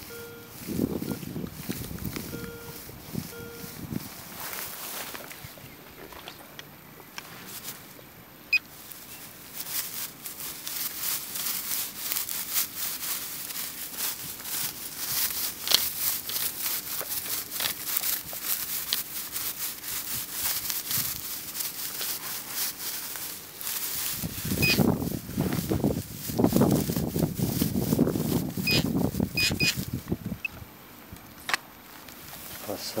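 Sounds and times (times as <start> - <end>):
short high beep: 0.0 - 1.2, 2.3 - 3.8, 24.6 - 24.8
dry grass rustling and crackling: 0.0 - 33.0.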